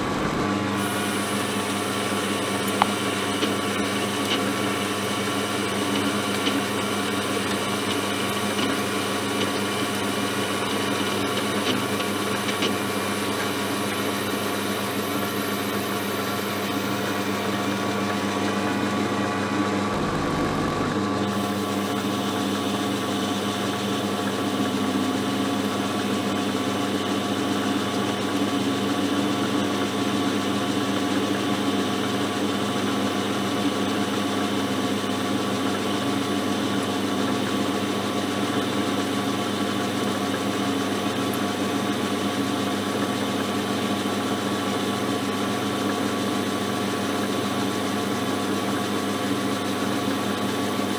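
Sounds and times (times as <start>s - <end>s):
metal lathe motor and gear whine: 0.0s - 11.2s, 20.0s - 22.0s.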